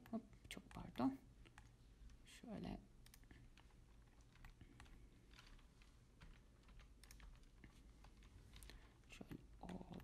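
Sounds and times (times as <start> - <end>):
computer keyboard clicks: 3.0 - 10.0.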